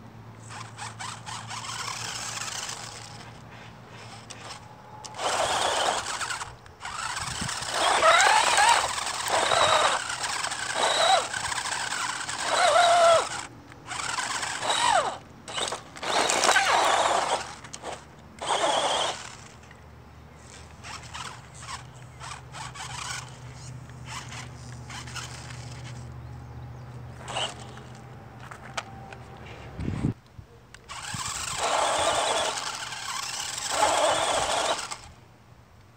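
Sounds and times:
quiet steady hum: 0.0 - 35.9
electric motors whining: 0.4 - 19.8, 20.4 - 26.2, 27.1 - 29.2, 30.9 - 35.2.

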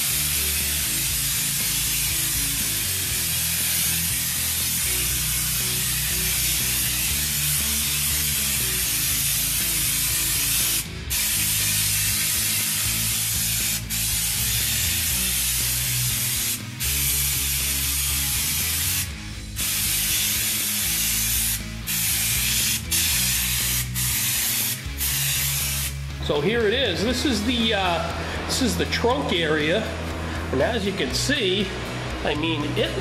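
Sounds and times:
spray gun hissing: 0.0 - 26.1.

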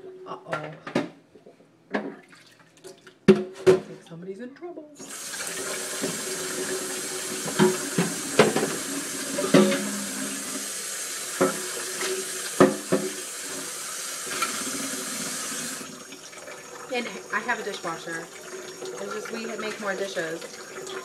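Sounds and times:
tap running into sink: 5.0 - 15.9
dishes clinking together: 9.4 - 10.2.

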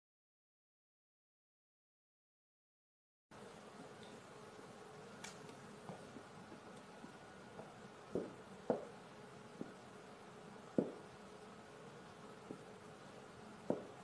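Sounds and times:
faint steady hum: 3.3 - 14.0.

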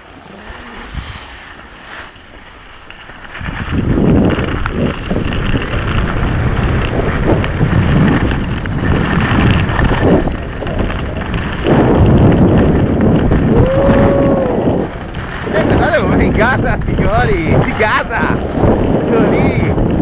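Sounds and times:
skis scraping on snow: 0.0 - 20.0
wind buffeting microphone: 0.0 - 20.0.

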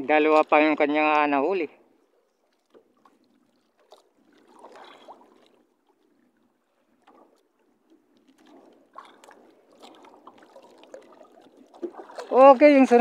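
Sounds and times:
water lapping against boat hull: 0.0 - 13.0.

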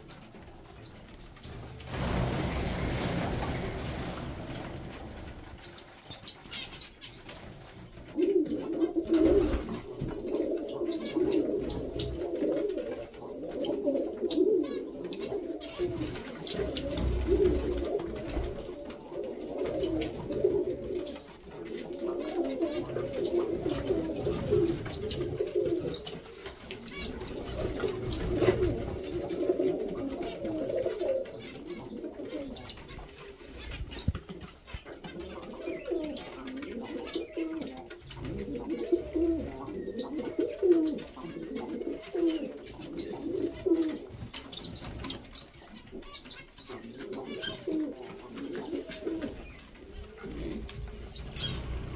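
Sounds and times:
pigeons cooing: 0.0 - 51.9
finches chirping: 50.4 - 51.9.

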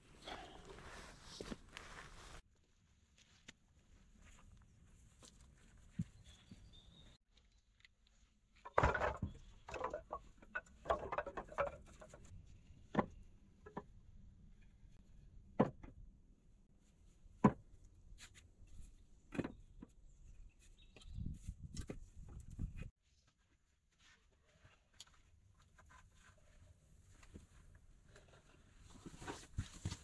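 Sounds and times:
wooden poles clattering: 8.6 - 12.3.

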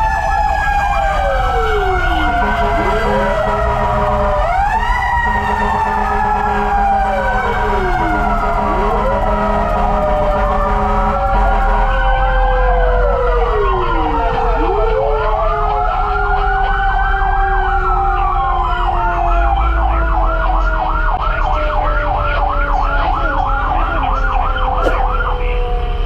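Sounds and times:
truck engine running: 0.0 - 17.4
fire truck sirens wailing: 0.0 - 26.0.

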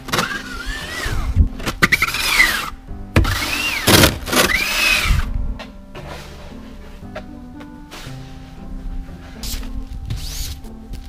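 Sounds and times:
snow shovel scraping: 1.8 - 2.7, 3.3 - 5.2.

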